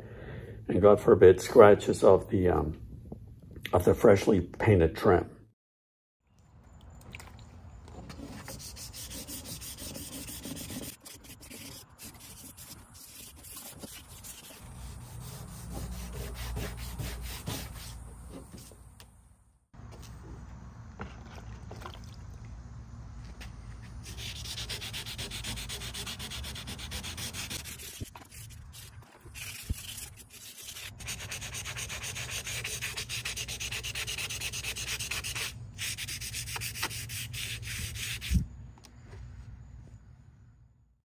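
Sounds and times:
sanding pad rubbing wood: 8.2 - 18.7, 24.0 - 38.4.

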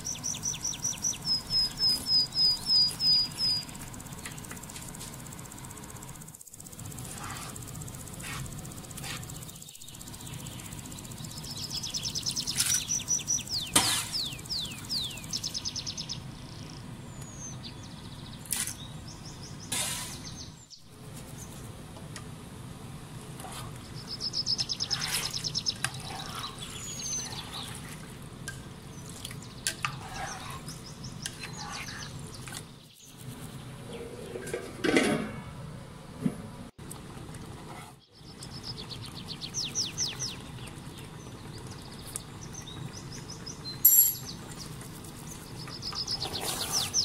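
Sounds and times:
small birds chirping: 0.0 - 21.7, 23.5 - 34.5, 38.0 - 47.0
steady low hum: 0.0 - 47.0.

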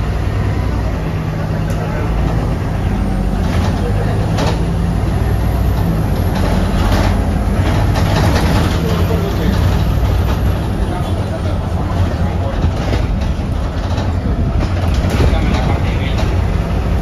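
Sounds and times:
bus engine hum: 0.0 - 17.0.

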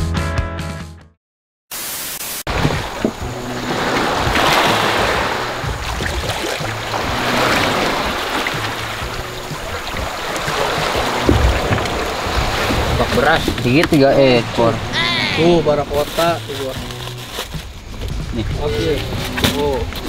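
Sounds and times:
wind: 1.8 - 20.0
sea water rushing: 2.4 - 16.8.

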